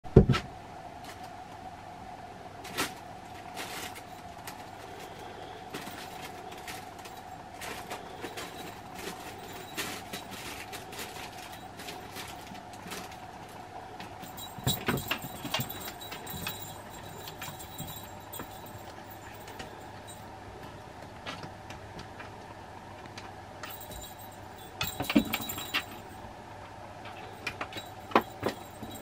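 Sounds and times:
steady hum: 0.1 - 29.0
fabric tunnel rustling: 2.6 - 5.1, 5.7 - 20.3.

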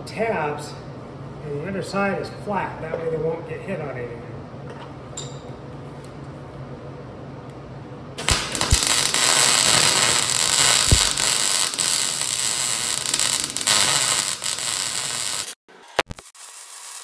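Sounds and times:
welder arc crackling and hissing: 8.2 - 17.0.

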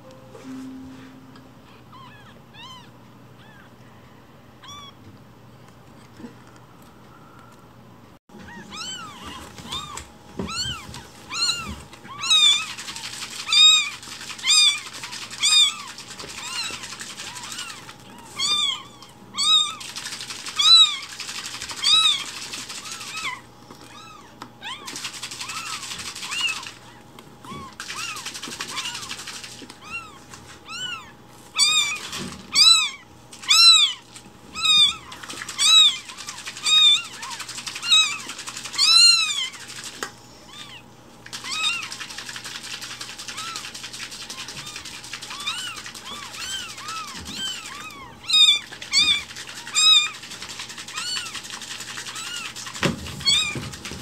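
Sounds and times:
kittens meowing: 8.4 - 19.8, 21.8 - 29.1, 29.8 - 39.6, 40.5 - 42.0, 44.3 - 50.2, 50.9 - 51.4, 52.1 - 52.6, 53.2 - 53.7.

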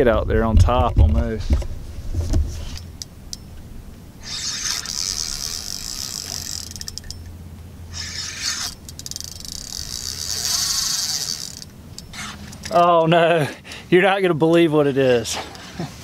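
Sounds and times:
fishing reel drag buzzing: 4.2 - 7.3, 7.9 - 12.6.

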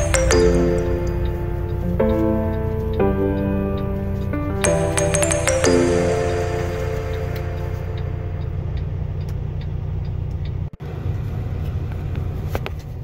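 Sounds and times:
diesel truck engine idling: 6.0 - 12.0.

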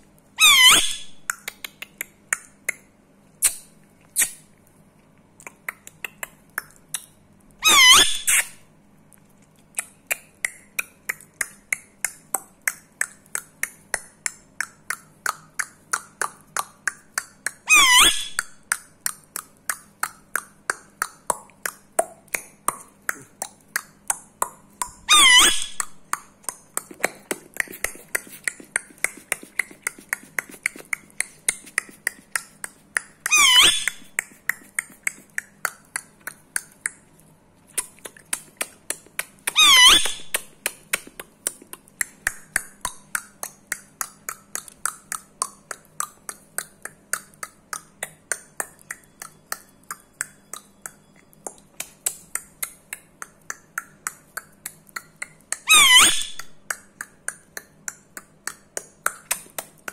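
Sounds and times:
parakeet high call: 0.4 - 1.2, 7.6 - 8.6, 17.7 - 18.5, 25.1 - 25.9, 33.3 - 34.1, 39.5 - 40.4, 55.7 - 56.5.

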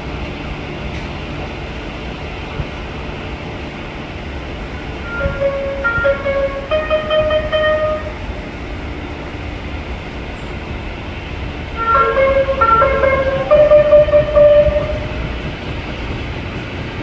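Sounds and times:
train low rumble: 0.0 - 17.0
electronic tones: 5.1 - 8.1.

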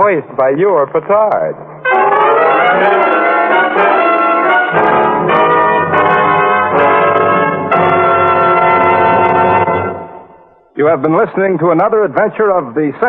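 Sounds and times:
brass-led orchestral music: 1.8 - 10.6.

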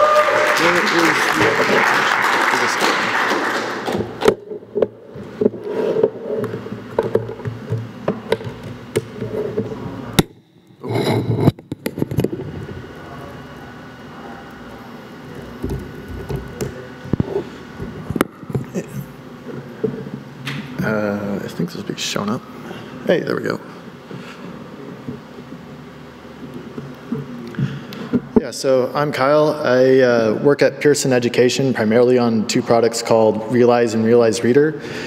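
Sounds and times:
audience applause: 0.0 - 4.2
clicks and knocks at microphone: 10.9 - 12.7.

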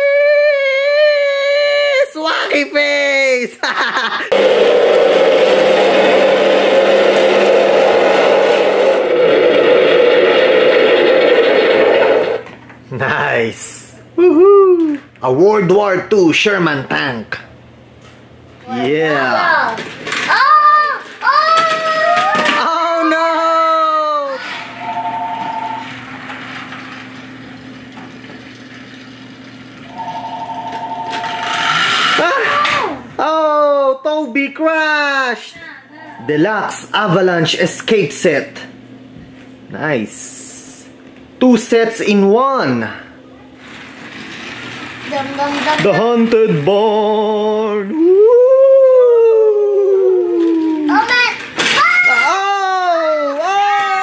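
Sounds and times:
toy train motor humming: 4.3 - 12.5, 19.4 - 33.0, 43.6 - 47.5, 50.3 - 54.0
toy tank motor whirring: 31.2 - 32.9, 43.6 - 45.9.

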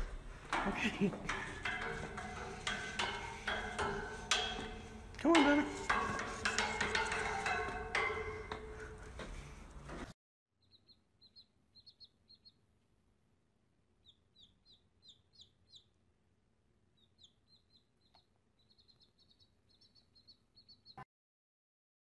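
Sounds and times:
chick peeping: 10.6 - 12.6, 14.0 - 16.0, 17.0 - 21.0.

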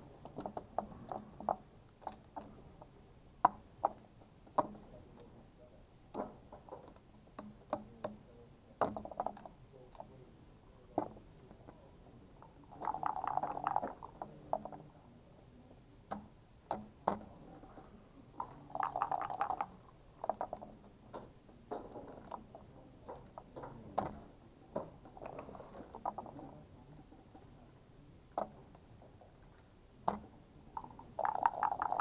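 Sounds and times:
plastic checkers clicking on board: 0.2 - 4.9, 8.8 - 10.1, 18.4 - 26.4, 30.0 - 32.0.

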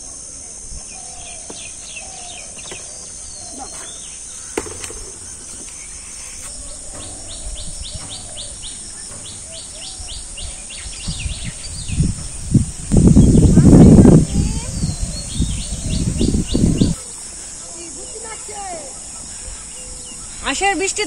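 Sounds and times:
insects droning: 0.0 - 21.0
bird chirping: 0.8 - 21.0
low thuds: 3.8 - 17.0.

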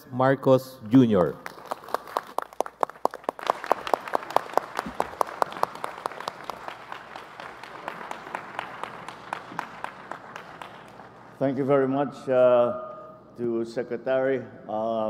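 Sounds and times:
crowd applauding: 1.2 - 11.5
sharp close hand claps: 1.3 - 11.4.

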